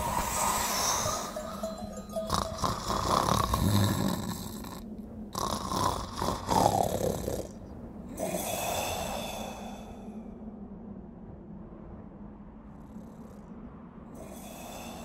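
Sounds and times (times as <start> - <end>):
man snoring: 0.3 - 7.6.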